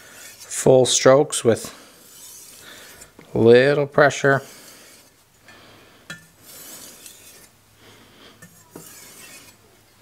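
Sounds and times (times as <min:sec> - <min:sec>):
knife stroked on whetstone: 0:00.0 - 0:00.6, 0:02.0 - 0:03.2, 0:06.4 - 0:07.6, 0:08.4 - 0:09.6.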